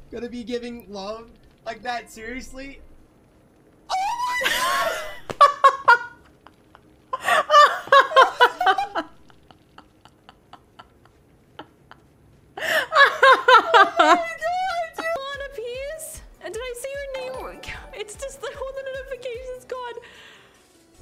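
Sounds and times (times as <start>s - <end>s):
woman laughing hard: 3.9s - 15.2s.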